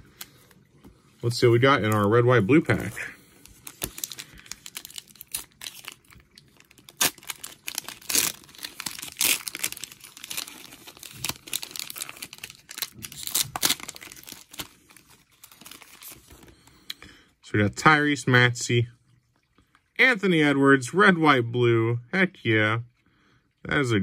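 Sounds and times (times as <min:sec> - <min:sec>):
cellophane wrapper tearing: 0:02.7 - 0:16.5.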